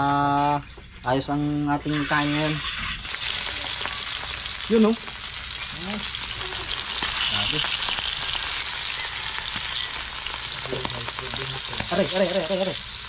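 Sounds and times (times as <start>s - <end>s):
fish frying in hot oil: 1.7s - 13.0s.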